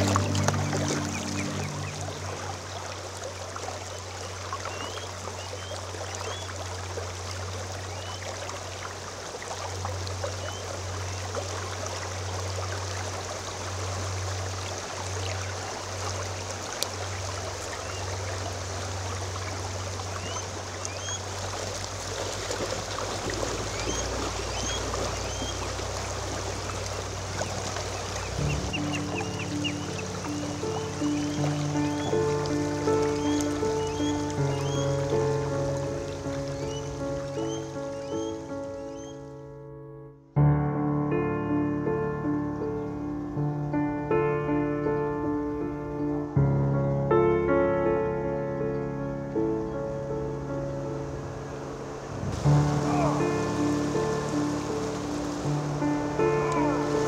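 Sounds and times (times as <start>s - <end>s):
bird chirps: 0.0s - 2.4s, 4.2s - 6.5s, 7.9s - 8.2s, 20.1s - 21.3s, 23.7s - 25.7s, 27.4s - 35.4s, 36.5s - 39.3s
river water flowing: 0.0s - 39.5s, 40.8s - 57.0s.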